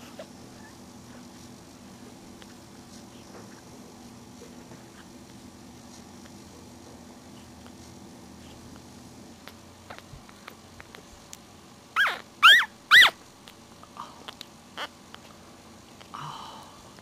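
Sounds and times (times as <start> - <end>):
puppy squealing: 12.0 - 13.2.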